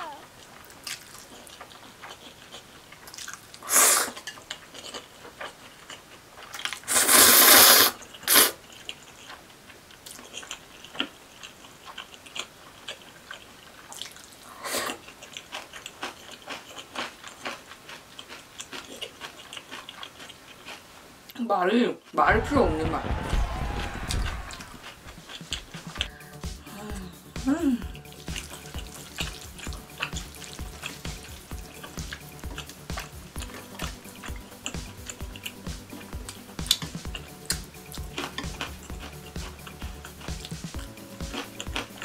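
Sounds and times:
wet chewing clicks: 0.4s - 20.9s, 28.0s - 42.0s
noodles being slurped: 3.2s - 5.6s, 6.4s - 9.4s.

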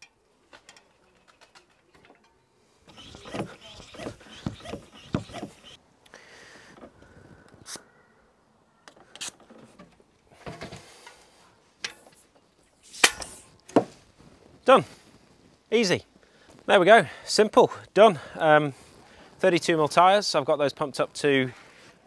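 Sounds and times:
track pump stroke: 2.9s - 5.8s.

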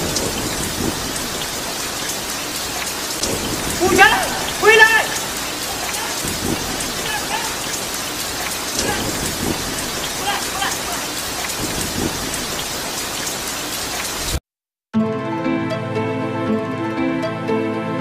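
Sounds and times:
heavy rain on wet pavement: 0.0s - 14.4s.

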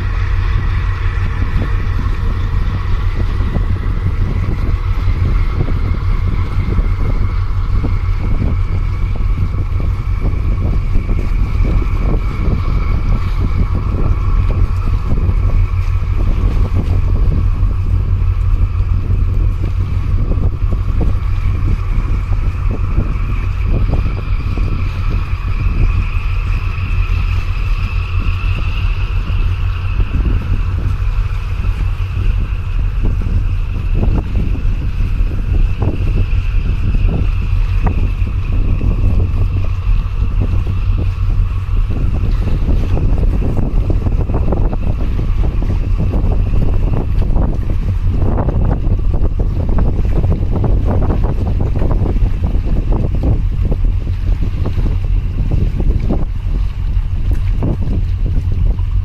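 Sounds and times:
steady rising whine: 0.0s - 59.0s
waves splashing against concrete: 0.0s - 59.0s
wind buffeting microphone: 0.0s - 59.0s.

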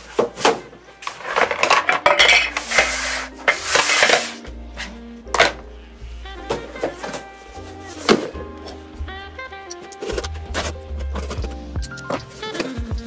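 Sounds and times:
scraping on tabletop: 1.1s - 4.4s
metal filters clinking on wood: 1.3s - 4.3s.

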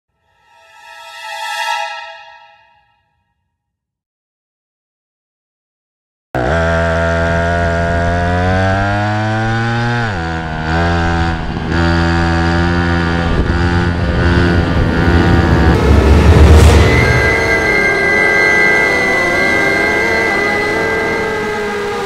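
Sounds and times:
small motor revving: 18.5s - 22.0s.

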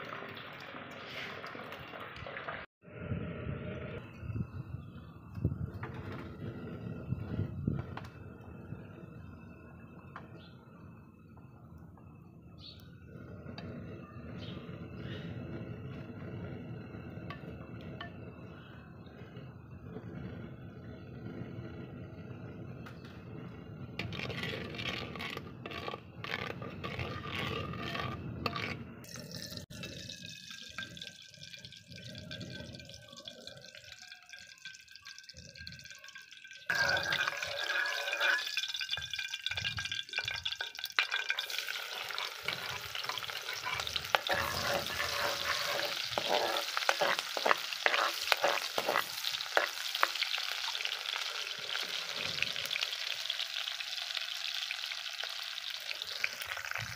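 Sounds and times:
oil sizzling in wok: 0.0s - 2.7s, 23.0s - 56.9s
onions frying with popping: 0.0s - 2.7s, 22.8s - 56.9s
spoon stirring in clay pot: 24.0s - 31.1s, 34.5s - 50.9s.

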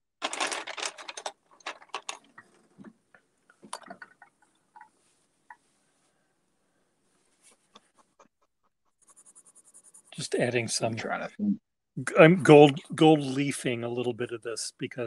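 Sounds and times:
pencils clicking and knocking: 0.2s - 5.6s.

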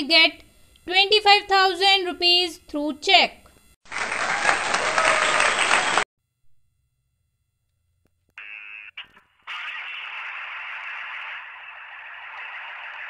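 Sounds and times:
short buzzy crackle: 8.4s - 13.0s
static-like hiss: 8.4s - 13.0s.

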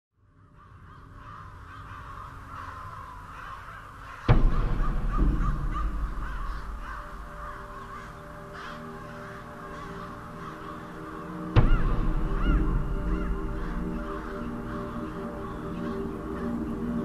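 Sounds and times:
crows cawing: 0.2s - 17.0s
deep rumbling boom: 4.3s - 7.6s.

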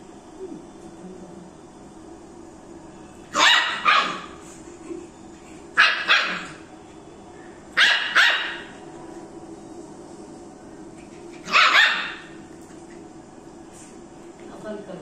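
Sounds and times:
puppy barking: 3.3s - 4.4s, 5.8s - 6.6s, 7.8s - 8.8s, 11.4s - 12.4s.

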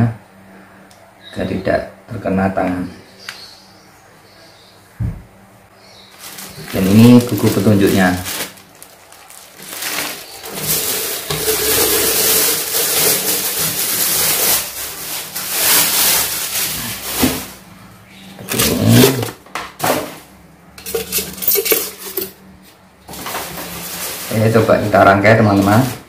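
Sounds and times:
plastic wrapping crinkling: 6.1s - 17.7s, 23.1s - 26.0s.

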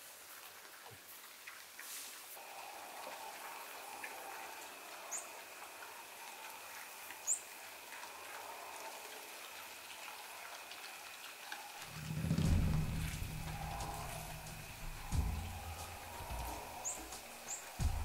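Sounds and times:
thin high hum: 11.9s - 18.0s.

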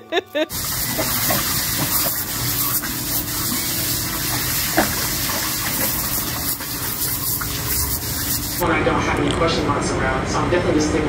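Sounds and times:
garden hose spraying water: 0.4s - 8.6s
water splashing into paddling pool: 0.5s - 8.6s.

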